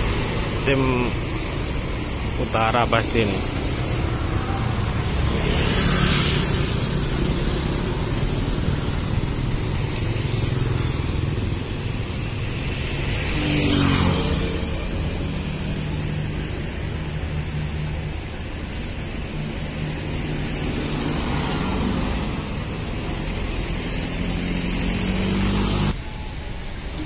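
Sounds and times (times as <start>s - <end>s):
motorcycles and cars passing: 0.0s - 26.1s
bus diesel engine rumble: 6.4s - 13.4s.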